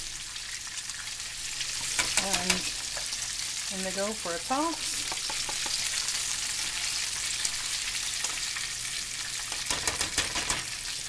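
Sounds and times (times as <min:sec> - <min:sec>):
chicken deep-frying in oil: 0:00.0 - 0:11.0
metal tongs clicking on pot: 0:01.8 - 0:02.8.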